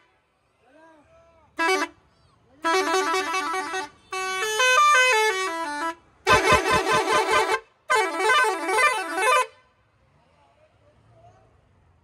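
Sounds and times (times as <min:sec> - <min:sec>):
musical air horn tunes: 0:02.6 - 0:09.5.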